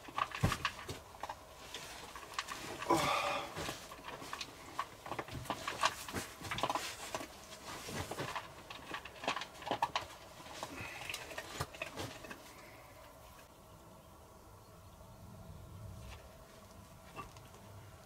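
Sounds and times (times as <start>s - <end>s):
person shifting on a bunk: 0.0s - 13.4s.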